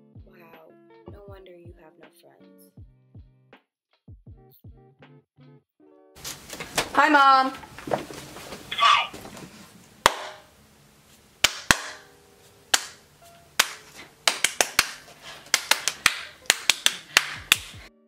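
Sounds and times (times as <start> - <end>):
faint music: 0.0 - 2.8, 6.2 - 18.0
person clapping hands: 10.1 - 10.4, 11.4 - 12.1, 12.7 - 13.0, 13.6 - 17.9.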